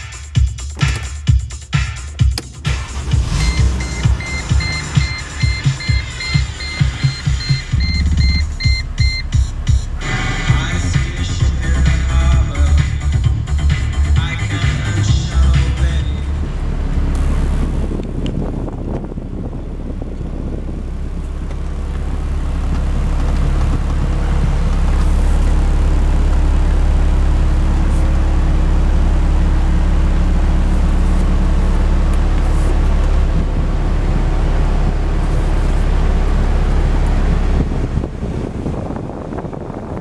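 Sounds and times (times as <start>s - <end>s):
air rushing from car vent: 17.0s - 25.8s, 27.7s - 28.3s, 30.5s - 33.6s.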